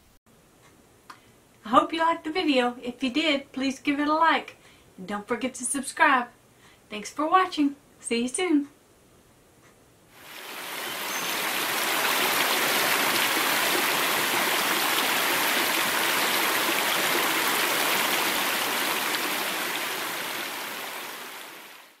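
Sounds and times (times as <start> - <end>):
creek babbling over rocks: 10.2 - 22.0.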